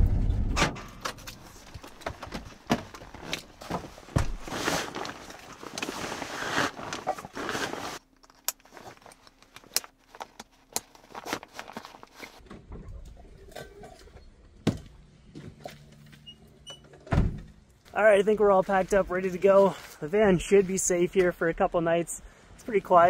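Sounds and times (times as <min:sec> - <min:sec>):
backpack fabric rustling: 0:01.4 - 0:12.4.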